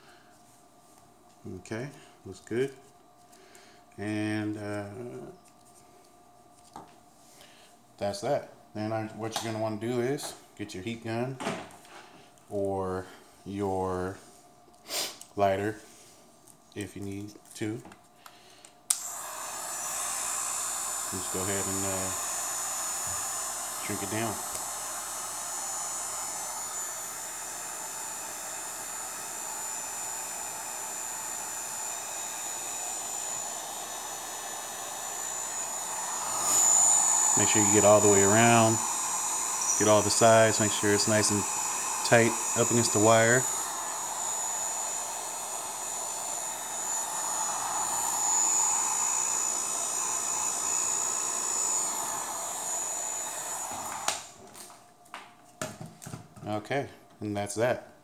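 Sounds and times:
heat gun blowing air: 0:18.9 - 0:54.4.

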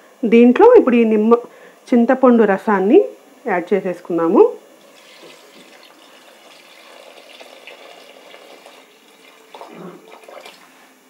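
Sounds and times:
liquid pouring into metal pot: 0:04.8 - 0:10.6.

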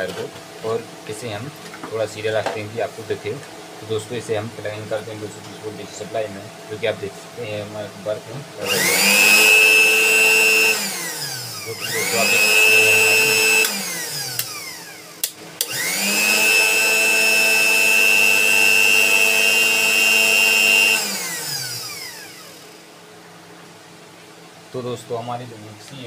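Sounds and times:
mixer grinder motor whine: 0:08.6 - 0:23.0.

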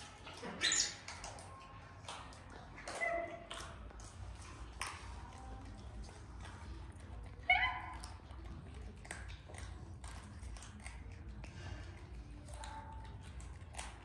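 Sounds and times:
monkeys chewing and handling food: 0:00.0 - 0:14.0
monkey high-pitched call: 0:00.5 - 0:01.1, 0:02.8 - 0:03.4, 0:07.5 - 0:08.1.

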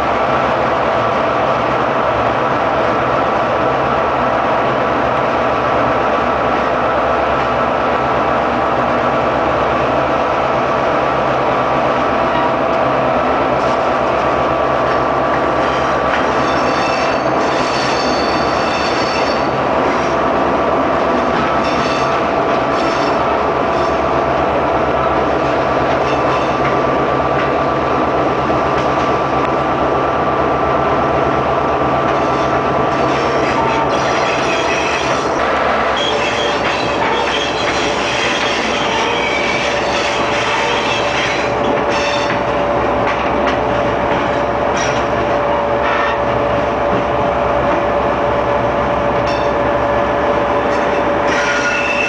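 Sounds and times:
diesel locomotive engine drone: 0:00.0 - 0:52.0
high-pitched wheel squeal: 0:15.6 - 0:20.1, 0:21.6 - 0:24.0, 0:32.4 - 0:42.4, 0:50.7 - 0:52.0.

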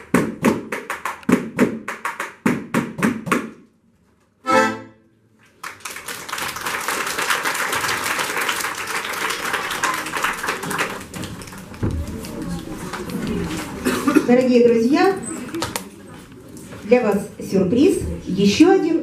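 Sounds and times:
accordions and violin chords: 0:04.4 - 0:05.1
audience applauding: 0:05.5 - 0:13.9.

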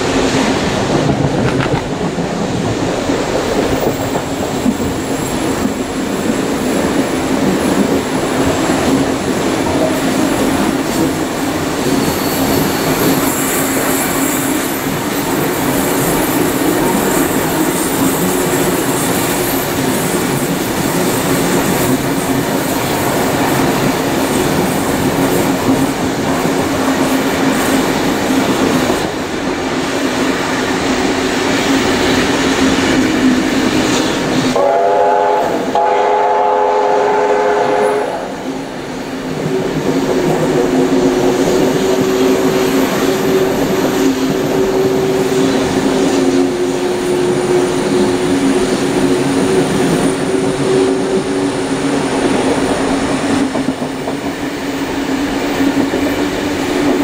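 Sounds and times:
train running noise: 0:00.0 - 0:57.0
wheels squealing: 0:11.8 - 0:14.8
steam whistle: 0:34.6 - 0:38.4.

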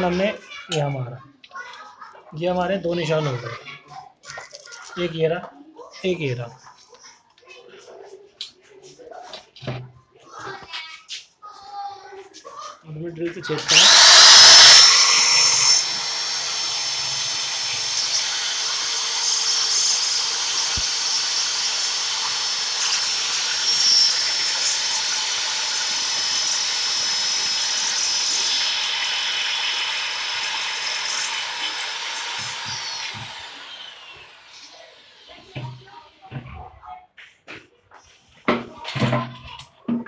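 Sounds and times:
electric drill whining: 0:13.6 - 0:35.9.

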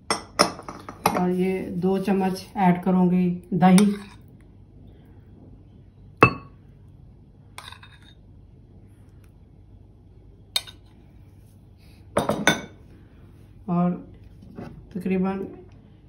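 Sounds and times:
spoon clinking on ceramic bowl: 0:03.8 - 0:04.2, 0:06.2 - 0:06.5.

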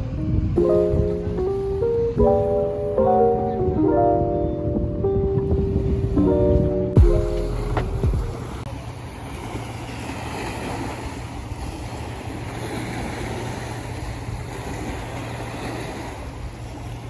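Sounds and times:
background music: 0:00.0 - 0:08.6
wind rumbling on microphone: 0:00.0 - 0:17.0
small waves washing against shore: 0:05.6 - 0:17.0.

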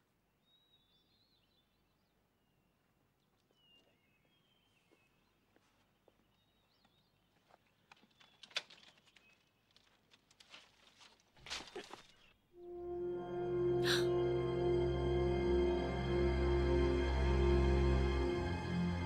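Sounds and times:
faint birdsong chirping: 0:00.3 - 0:09.7
bamboo sticks clicking and knocking: 0:07.8 - 0:12.2.

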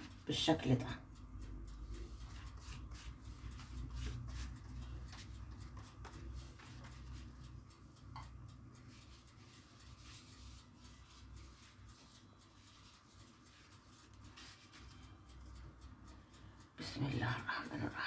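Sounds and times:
pastry brush brushing: 0:00.0 - 0:15.8
pastry sheet rustling: 0:02.0 - 0:07.5, 0:08.9 - 0:15.1.

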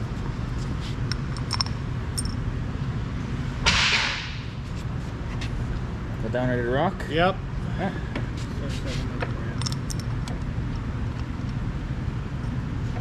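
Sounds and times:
low shop hum: 0:00.0 - 0:13.0
metallic clinks of bolts: 0:01.1 - 0:02.4, 0:09.6 - 0:10.2.

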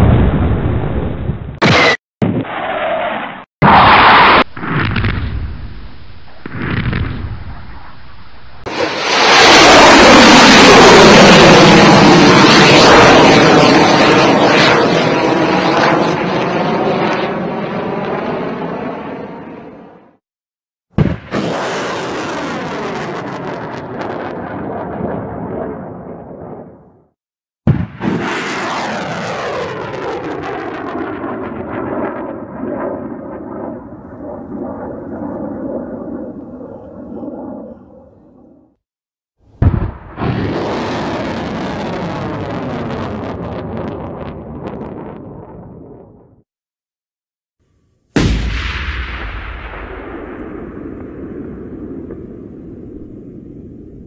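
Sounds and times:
jet aircraft roar: 0:07.2 - 0:19.5, 0:28.3 - 0:38.7
jet aircraft engine rushing: 0:08.6 - 0:16.2.

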